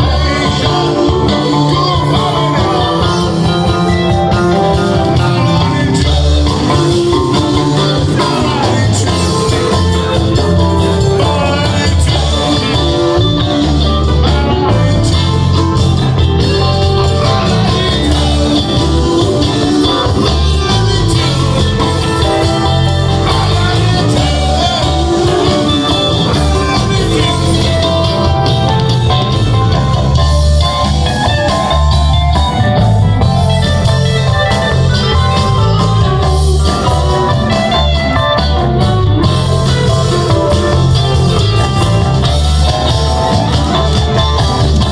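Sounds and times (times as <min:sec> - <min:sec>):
person singing: 0:00.0 - 0:32.4
bass guitar: 0:00.0 - 0:44.9
electric guitar: 0:00.0 - 0:44.9
live rock band over pa: 0:00.0 - 0:44.9.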